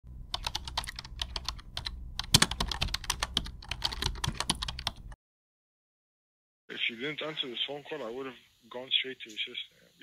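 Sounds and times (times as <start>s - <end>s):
low steady hum: 0.1s - 5.2s
keyboard typing: 0.3s - 5.2s.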